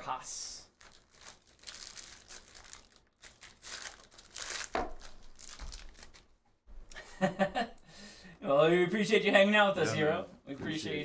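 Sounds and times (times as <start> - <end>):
cards rustling and crinkling: 0.7 - 6.4.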